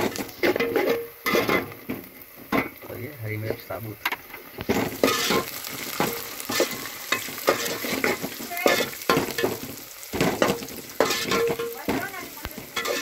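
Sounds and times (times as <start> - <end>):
onions sizzling in hot oil: 0.0 - 13.0
metal spoon scraping pot: 4.1 - 12.0, 12.6 - 13.0.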